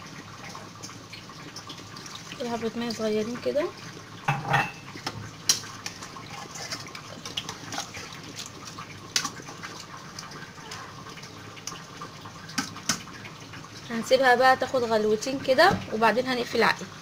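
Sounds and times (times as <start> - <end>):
spoon clinking against pot: 4.3 - 4.9.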